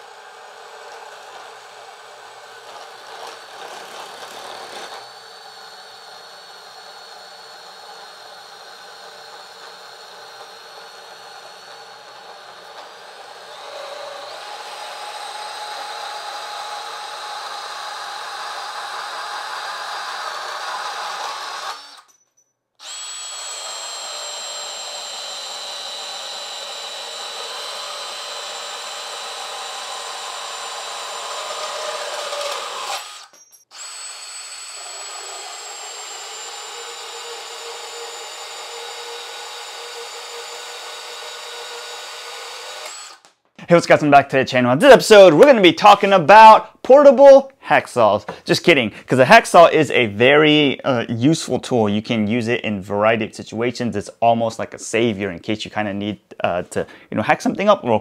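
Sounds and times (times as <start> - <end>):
bandsaw motor whine: 0.0 - 22.1, 22.8 - 43.3.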